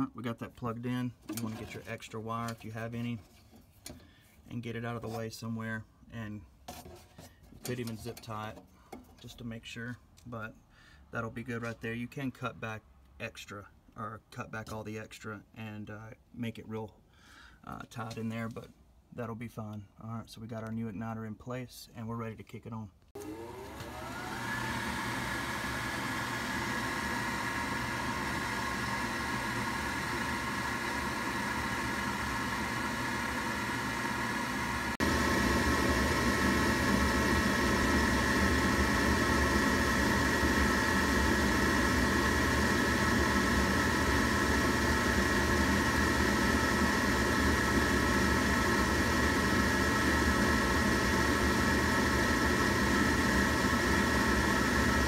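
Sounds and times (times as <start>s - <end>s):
furnace inducer motor whine: 23.2s - 55.0s.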